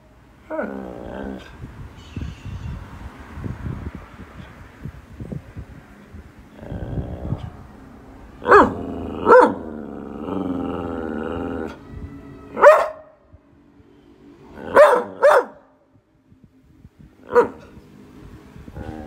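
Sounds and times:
drawn-out dog vocal sound: 0:06.4 - 0:11.8, 0:14.5 - 0:15.6, 0:17.2 - 0:17.9
dog barking: 0:08.4 - 0:09.7, 0:12.6 - 0:13.2, 0:14.7 - 0:15.7, 0:17.3 - 0:17.8.

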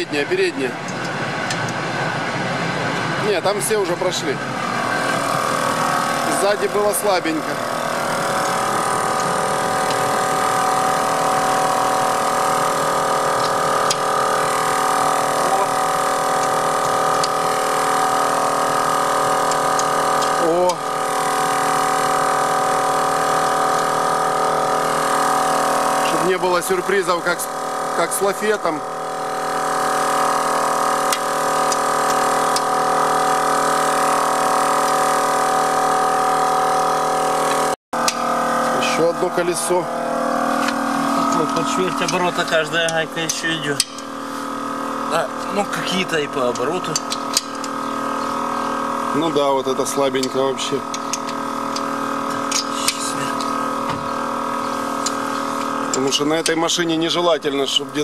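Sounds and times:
machine droning: 0:00.0 - 0:58.0
motor humming: 0:00.0 - 0:58.0
wrench clicking on lug nuts: 0:16.1 - 0:20.8, 0:40.6 - 0:44.2, 0:46.4 - 0:48.3, 0:50.0 - 0:53.6.

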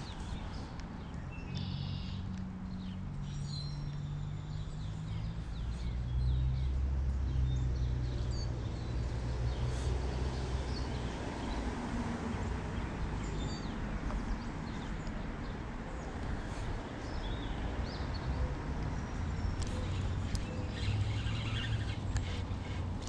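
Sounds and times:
birds chirping: 0:12.4 - 0:23.0.

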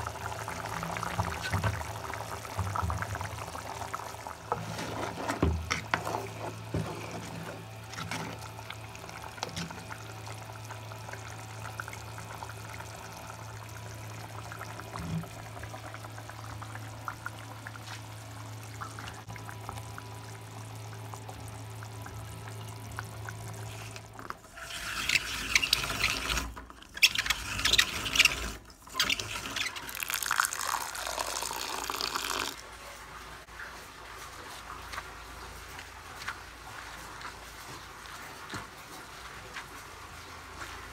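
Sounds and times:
curry bubbling in pot: 0:00.0 - 0:32.6.

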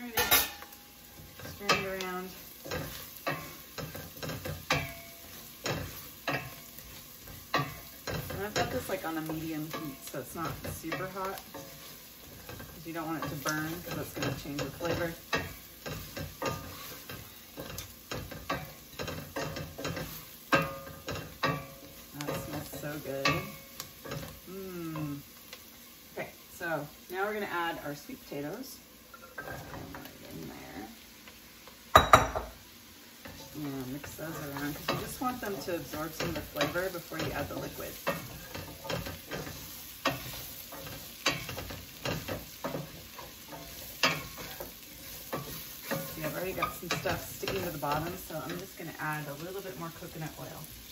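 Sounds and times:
vegetables sizzling: 0:00.0 - 0:50.9
wooden spoon scraping pot: 0:01.1 - 0:24.5, 0:33.2 - 0:50.6.

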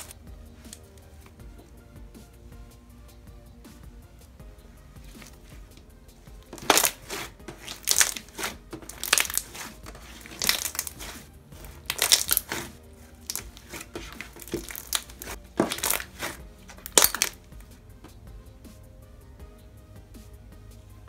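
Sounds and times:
slime squishing: 0:06.4 - 0:17.7.

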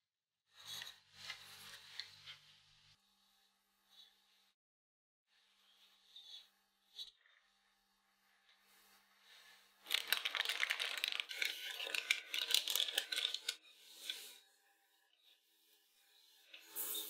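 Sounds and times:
baking paper crinkling: 0:09.8 - 0:13.6.

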